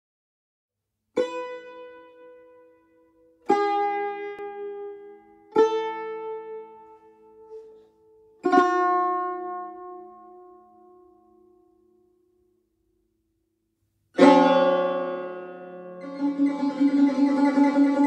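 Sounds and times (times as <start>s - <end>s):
plucked string notes: 1.2s - 11.6s, 14.2s - 18.0s.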